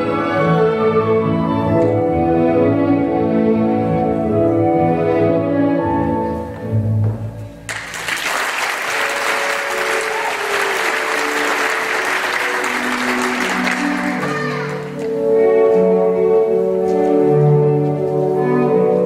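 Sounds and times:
orchestral ballet music: 0.0s - 19.0s
audience applause: 7.7s - 14.9s.

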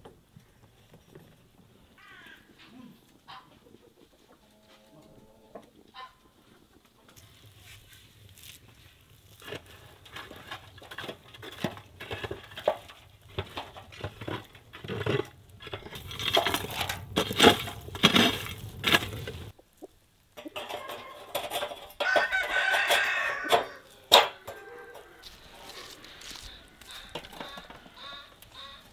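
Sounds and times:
chickens clucking: 0.4s - 7.4s, 9.4s - 28.9s
wooden pole knocking in clay oven: 9.3s - 19.5s
rooster crowing: 22.0s - 28.9s.

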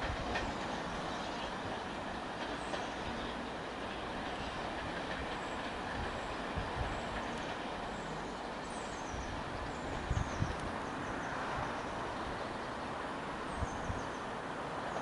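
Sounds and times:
distant train rumbling on rails: 0.0s - 15.0s.

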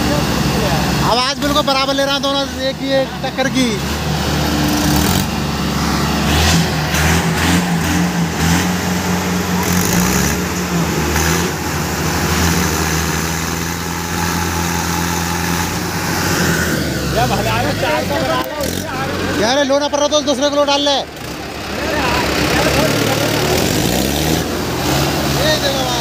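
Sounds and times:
diesel tractor engines droning: 0.0s - 26.0s.

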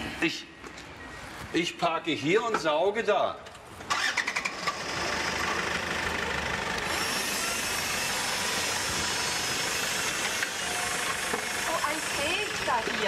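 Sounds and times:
car engine idling: 3.9s - 13.0s.

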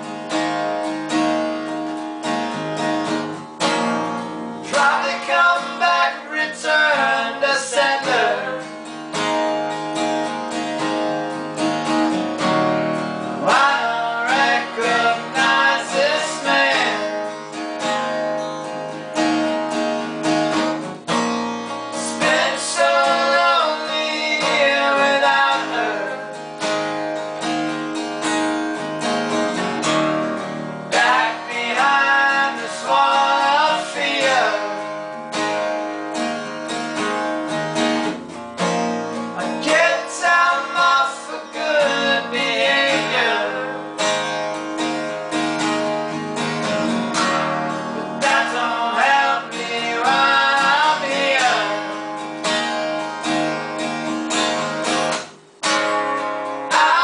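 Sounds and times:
acoustic guitar strumming: 0.0s - 57.0s.

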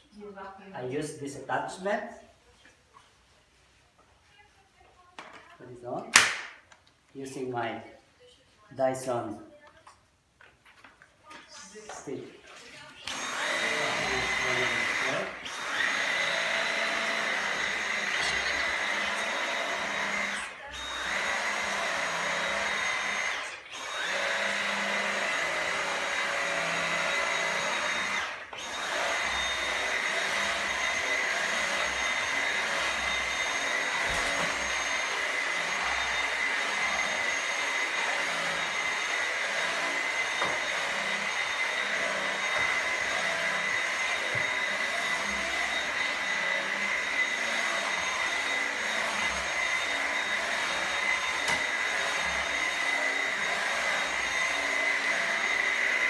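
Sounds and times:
cordless vacuum whining: 12.8s - 56.0s.

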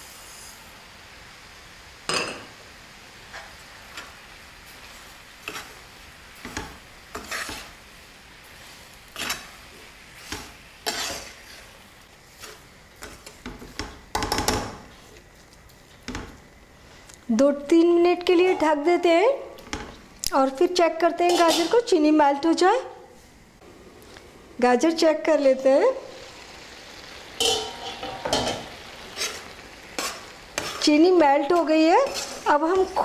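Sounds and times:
carrots hissing in a pan: 0.0s - 33.0s
metal spoon scraping a wok: 6.4s - 7.8s, 9.1s - 9.6s, 10.2s - 13.9s, 21.2s - 21.9s, 27.4s - 33.0s.

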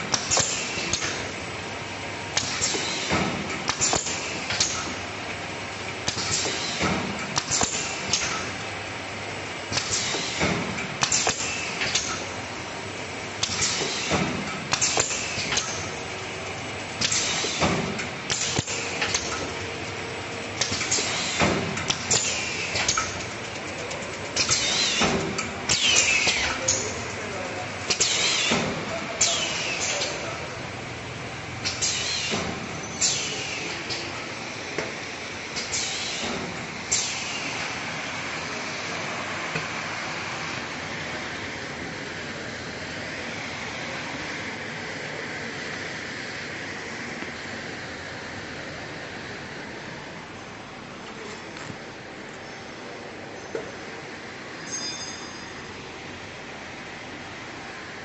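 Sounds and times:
machine clacks: 2.3s - 5.0s, 5.9s - 8.6s, 9.7s - 12.3s, 13.4s - 16.0s, 20.6s - 27.3s
packaging machine running: 13.4s - 44.0s.

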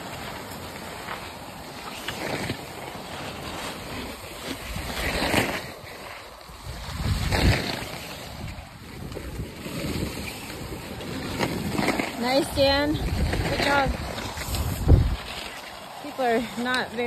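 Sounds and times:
skis scraping over snow: 0.0s - 17.0s
wind on microphone: 3.8s - 17.0s.

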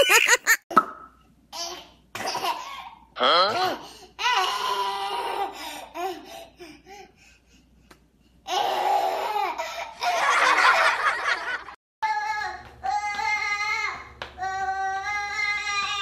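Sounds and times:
baby laughing: 0.0s - 0.6s.

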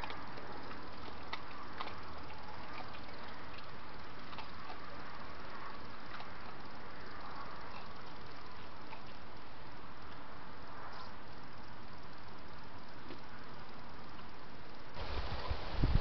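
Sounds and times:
badger foraging clicks and rustles: 0.0s - 10.2s
background hiss: 0.0s - 16.0s.

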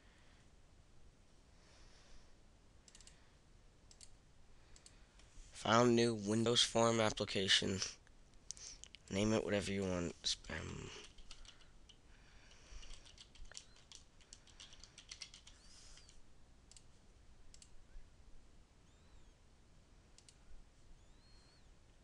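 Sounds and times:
computer mouse clicks: 2.9s - 3.2s, 3.9s - 4.2s, 11.0s - 12.0s, 12.8s - 16.9s, 17.5s - 17.7s, 20.2s - 20.4s
keyboard typing: 10.8s - 12.0s, 12.7s - 16.9s.

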